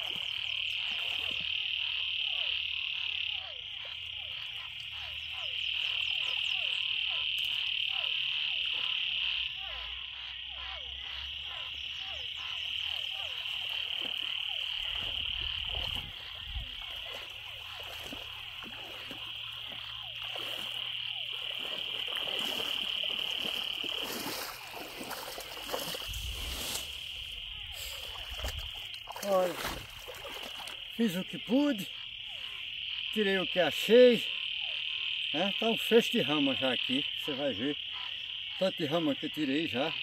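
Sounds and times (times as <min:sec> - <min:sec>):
water sloshing from wading: 0:00.0 - 0:09.7, 0:11.4 - 0:32.8
frogs calling: 0:00.0 - 0:40.0.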